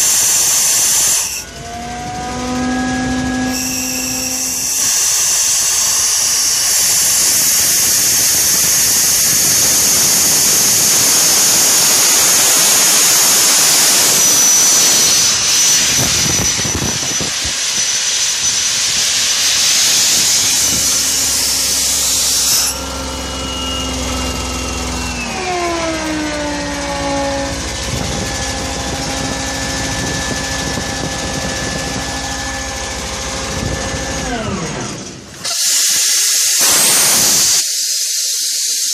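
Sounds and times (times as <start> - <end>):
loud airy hiss: 0.0 - 1.4, 3.5 - 22.9, 35.4 - 38.9
engine-driven machine humming: 0.0 - 37.6.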